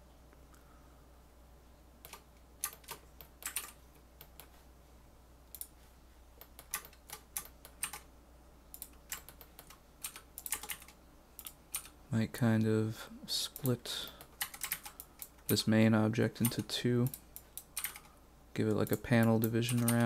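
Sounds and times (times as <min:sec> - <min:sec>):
keyboard keystrokes: 0:02.0 - 0:04.5, 0:08.8 - 0:11.9, 0:16.4 - 0:18.1, 0:18.9 - 0:20.0.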